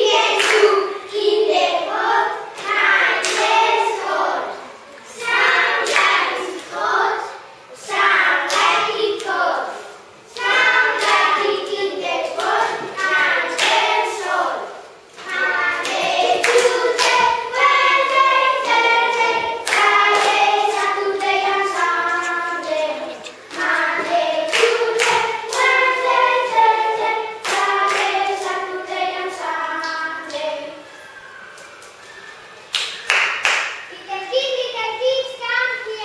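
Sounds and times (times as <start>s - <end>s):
children singing: 0.0s - 31.7s
hand claps: 0.3s - 0.7s, 12.3s - 13.9s, 15.2s - 17.4s, 18.6s - 26.2s, 27.4s - 28.5s, 32.7s - 33.9s.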